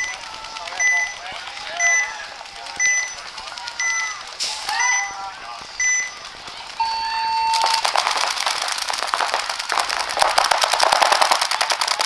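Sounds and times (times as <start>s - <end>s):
paintball markers firing rapidly: 0.0s - 4.4s, 7.5s - 12.0s.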